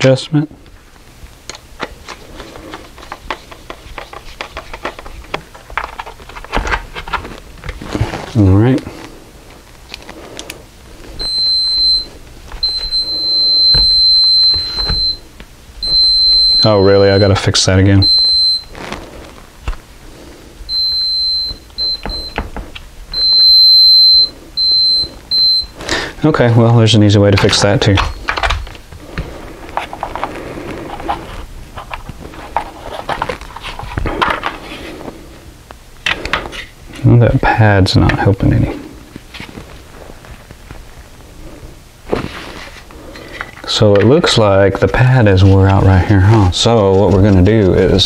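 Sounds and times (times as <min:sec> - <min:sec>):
multimeter continuity beeps: 0:11.2 - 0:18.8, 0:20.7 - 0:22.4, 0:23.1 - 0:25.9, 0:27.4 - 0:28.4.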